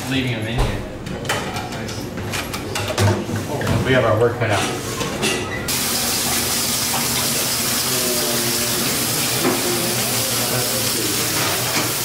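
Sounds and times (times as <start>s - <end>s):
tap water running into metal sink: 5.7s - 12.0s.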